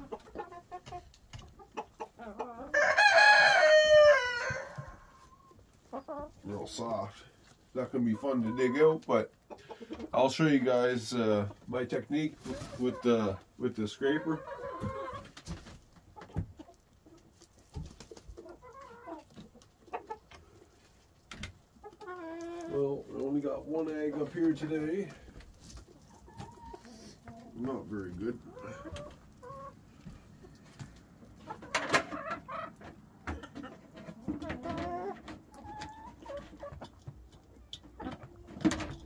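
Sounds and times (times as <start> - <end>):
chickens clucking: 0.0 - 39.0
rooster crowing: 2.7 - 5.0.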